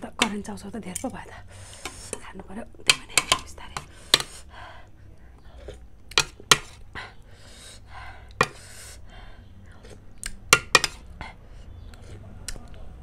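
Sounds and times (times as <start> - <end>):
breathy eating sounds: 1.2 - 12.8
cutlery clinking on metal plate: 10.5 - 11.0.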